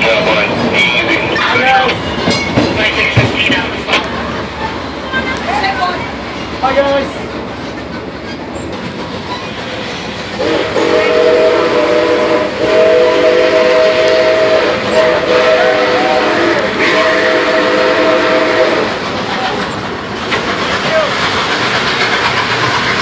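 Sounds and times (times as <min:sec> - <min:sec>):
rumble and clatter of moving train: 0:00.0 - 0:23.0
steam whistle blasts: 0:10.4 - 0:18.9.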